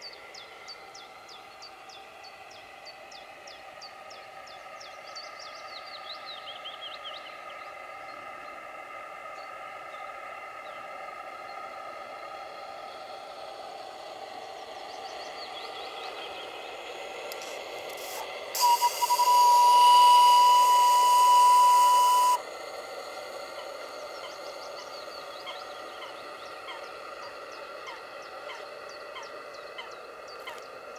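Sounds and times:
small steam whistle: 17.4 - 25.1.

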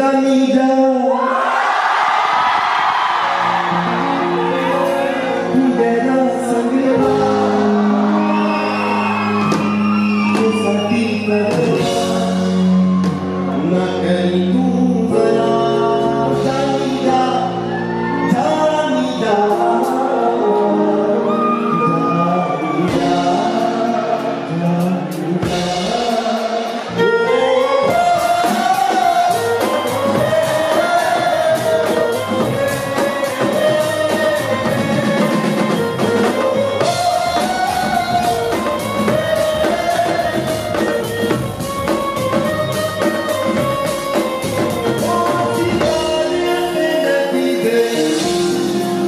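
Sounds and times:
man singing into a microphone: 0.0 - 1.3, 4.8 - 41.4, 44.6 - 49.0
keyboard chords: 2.6 - 49.0
steady drum beat: 27.6 - 47.0.

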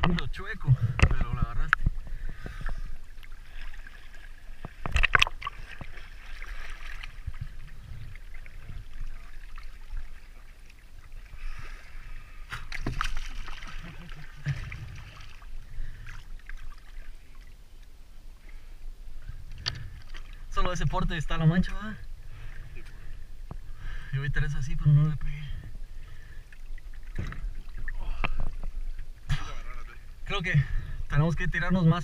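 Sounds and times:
seawater sloshing and splashing: 0.8 - 18.7, 19.3 - 20.8, 25.8 - 30.0.

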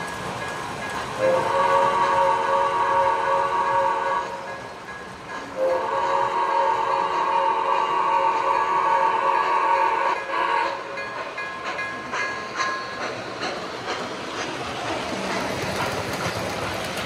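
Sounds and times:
train wheels rolling on track: 0.0 - 17.0
model steam locomotive whistle: 1.2 - 4.8, 5.5 - 11.1.

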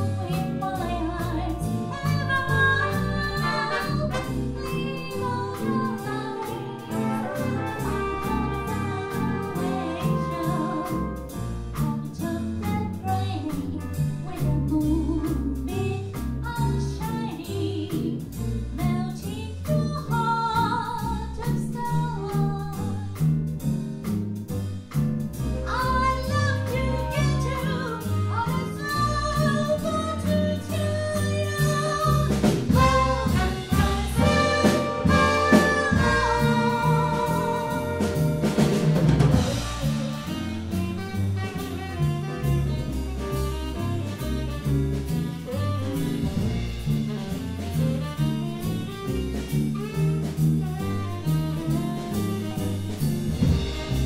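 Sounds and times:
woman singing: 0.0 - 23.1, 25.6 - 38.4
jazz band playing: 0.0 - 54.0.

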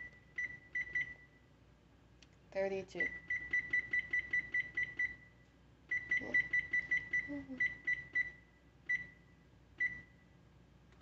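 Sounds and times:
oven control panel beeping: 0.0 - 1.4, 5.9 - 10.2.

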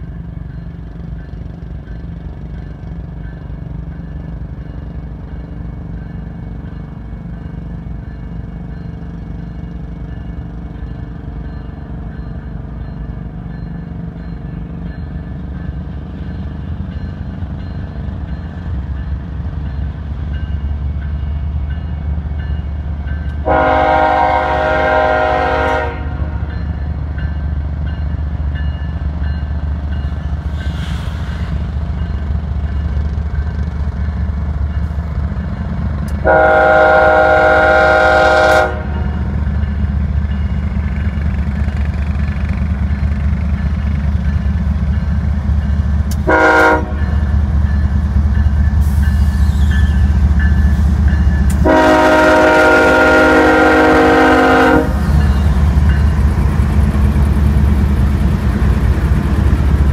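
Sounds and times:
diesel locomotive rumble: 0.0 - 59.9
locomotive air horn blasts: 23.4 - 26.4, 36.2 - 39.2, 46.2 - 47.1, 51.5 - 55.1.

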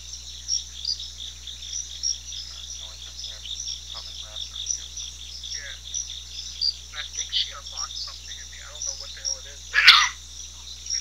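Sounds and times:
crickets chirping: 0.0 - 11.0
faint voice-like sounds: 2.4 - 5.0, 5.6 - 5.8, 6.9 - 11.0.

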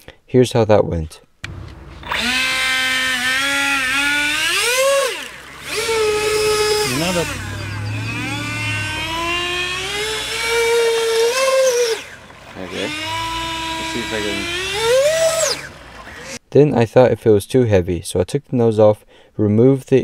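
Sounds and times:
electric ducted fan whining: 1.4 - 16.4.

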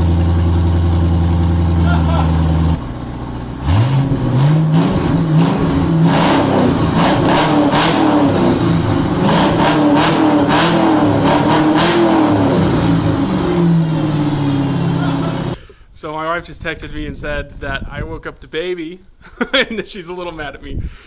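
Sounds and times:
exhaust cracks: 0.0 - 15.6
car engine revving loudly: 3.6 - 15.6.

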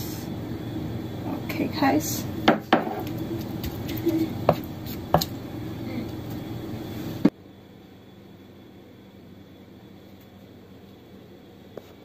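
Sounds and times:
steady low hum: 0.0 - 12.0
kitchenware knocks and taps: 2.5 - 3.1.

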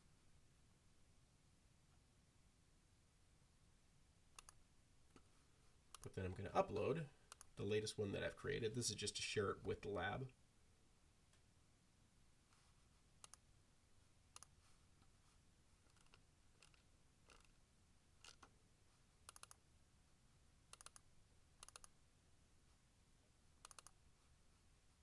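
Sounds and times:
background hiss: 0.0 - 25.0
computer mouse clicks: 4.4 - 4.6, 7.3 - 7.6, 13.2 - 13.4, 14.4 - 14.6, 19.3 - 19.6, 20.7 - 22.0, 23.6 - 24.0.

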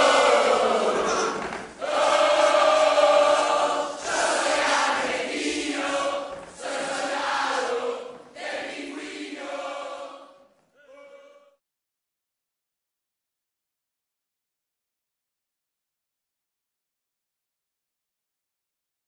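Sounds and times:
choir singing: 0.0 - 11.5.

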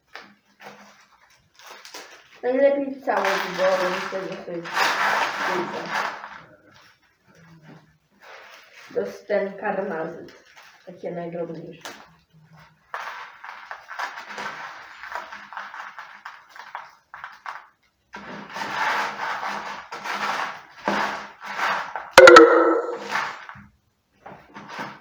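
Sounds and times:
sharp knock with brief ring: 22.2 - 23.1.

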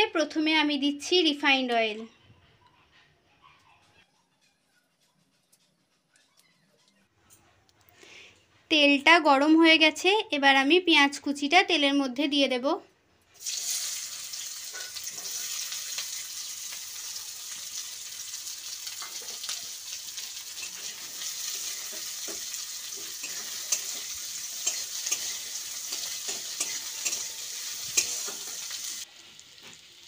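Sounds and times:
onions sizzling in oil: 13.4 - 30.0
metal spatula scraping pan: 14.6 - 15.5, 20.5 - 29.0.

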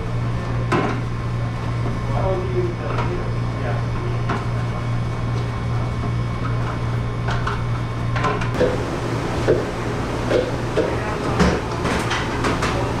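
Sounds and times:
low hum of kitchen machinery: 0.0 - 13.0
dishes and dish racks clattering: 8.6 - 13.0.

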